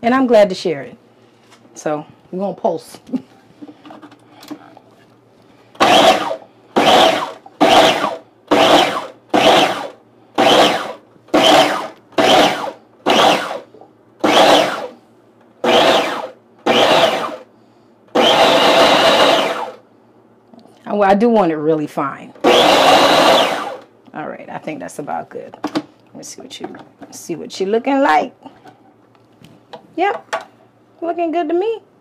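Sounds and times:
food processor chopping: 0:05.8 - 0:15.0, 0:15.6 - 0:17.4, 0:18.1 - 0:19.8, 0:22.4 - 0:23.8.

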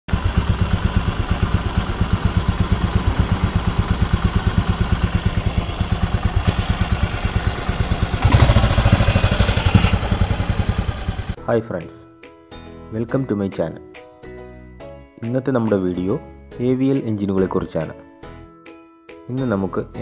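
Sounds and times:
motorcycle engine idling: 0:00.1 - 0:11.4.

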